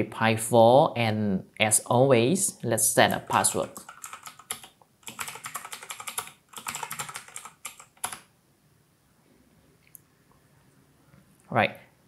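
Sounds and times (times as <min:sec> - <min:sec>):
keyboard typing clicks: 0:03.3 - 0:08.3.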